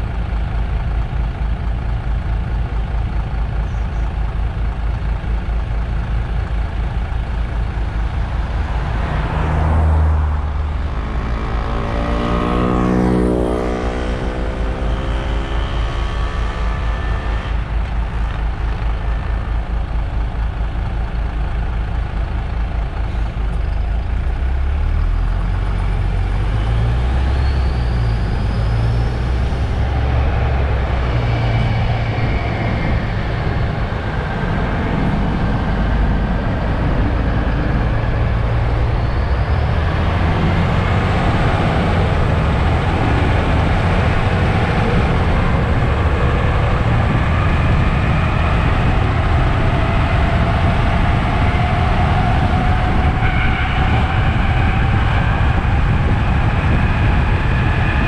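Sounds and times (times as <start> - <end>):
bus engine rumble: 0.0 - 58.0
rising whines: 7.7 - 17.9, 24.7 - 58.0.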